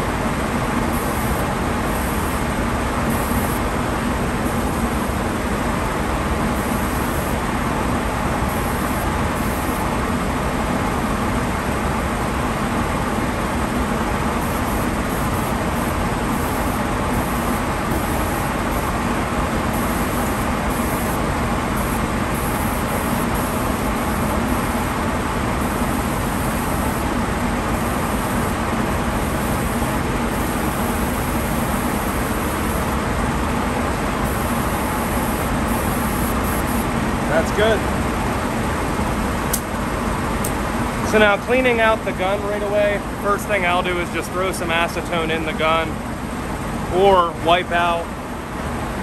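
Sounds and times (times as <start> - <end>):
low hum: 14.2 - 37.0.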